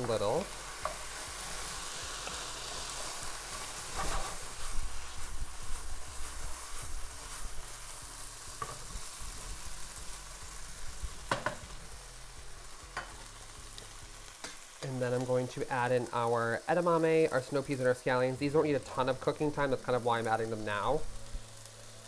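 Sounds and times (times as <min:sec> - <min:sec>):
food sizzling in a pan: 0:00.0 - 0:22.0
utensil scraping a pan: 0:03.8 - 0:05.2.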